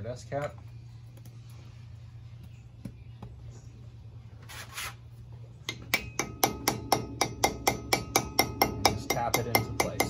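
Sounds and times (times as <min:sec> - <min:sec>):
hammer tapping metal cap: 0:05.7 - 0:10.0.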